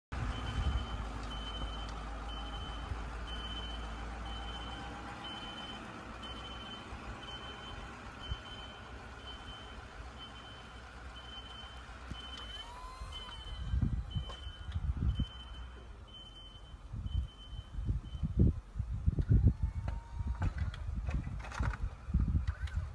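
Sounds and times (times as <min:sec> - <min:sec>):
truck engine rumble: 0:00.1 - 0:22.9
reversing alarm beeping: 0:00.3 - 0:18.4.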